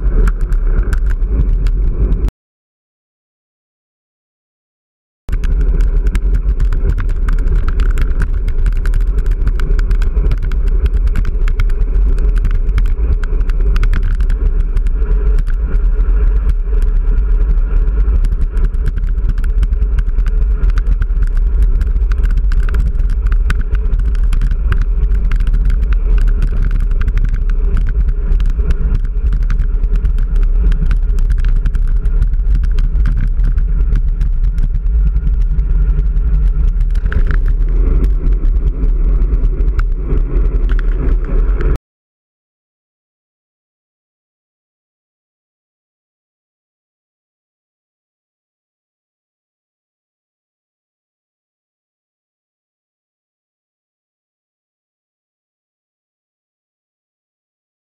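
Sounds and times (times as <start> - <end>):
road rumble: 0.0 - 2.3, 5.3 - 41.8
wind buffeting: 0.0 - 2.3, 5.3 - 41.8
bike rattling clicks: 5.3 - 15.8, 16.4 - 41.7.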